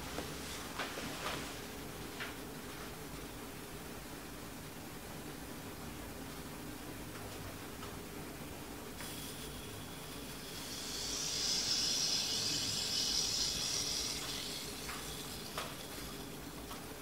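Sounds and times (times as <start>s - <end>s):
hissing: 9.0s - 16.8s.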